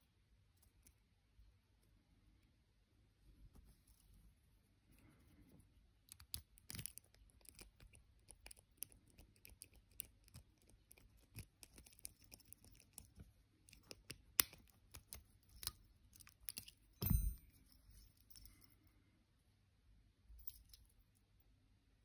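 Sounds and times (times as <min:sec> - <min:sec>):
padlock shackle springing open: 0:06.1 - 0:13.1
lock pick scratching and clicking: 0:06.1 - 0:17.4.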